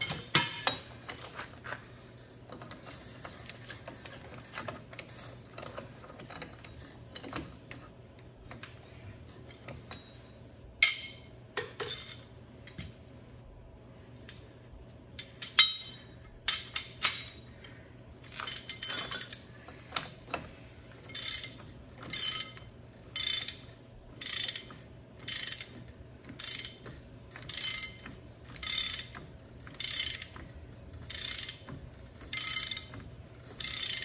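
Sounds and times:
ratchet wrench ratcheting: 1.2 - 7.8, 20.0 - 34.0.

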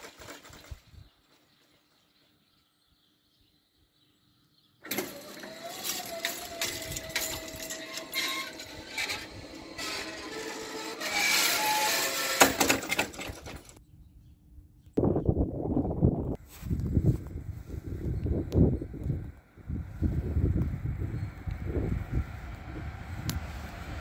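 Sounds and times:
electric drive whining: 4.8 - 13.8, 16.9 - 24.0
barrier arm rattling: 4.9 - 13.8.

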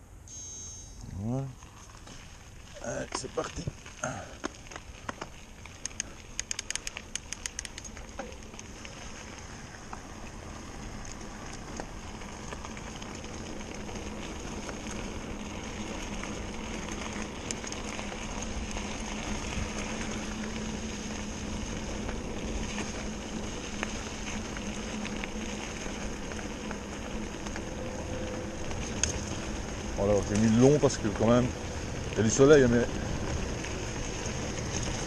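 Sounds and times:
bike tyres crackling on gravel: 1.0 - 35.0
small clicks and knocks: 4.4 - 8.7.

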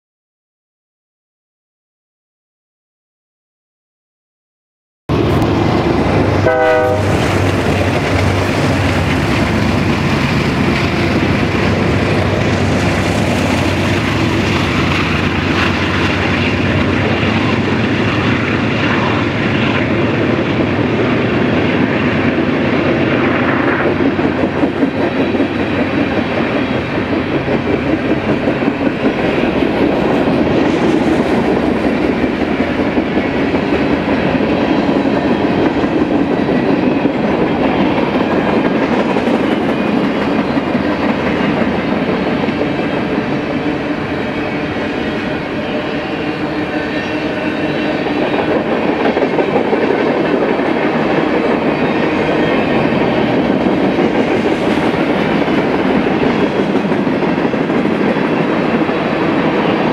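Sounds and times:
freight cars rumbling and clacking: 5.1 - 22.8
locomotive horn blast: 6.2 - 7.5.

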